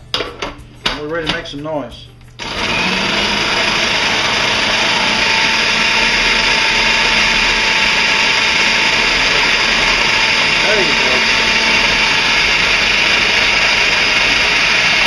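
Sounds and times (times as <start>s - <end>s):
food processor running: 2.4s - 15.0s.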